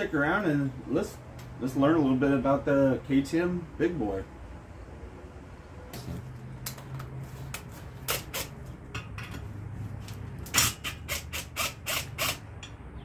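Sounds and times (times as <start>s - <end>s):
clicks and knocks of metal parts: 6.6s - 11.4s, 12.0s - 12.8s.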